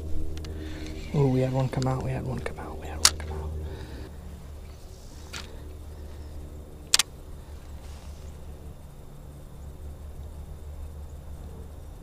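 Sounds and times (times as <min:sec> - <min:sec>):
steady low rumble: 0:00.0 - 0:12.0
sharp click: 0:06.9 - 0:07.1.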